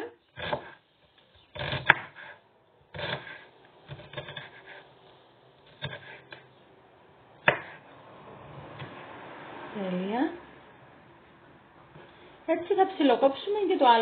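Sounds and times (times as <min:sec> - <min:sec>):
knife chopping on wooden board: 0:00.4 - 0:00.8, 0:01.6 - 0:02.3, 0:07.4 - 0:07.8
knife scraping board: 0:00.4 - 0:00.8, 0:01.4 - 0:04.9, 0:05.6 - 0:06.5.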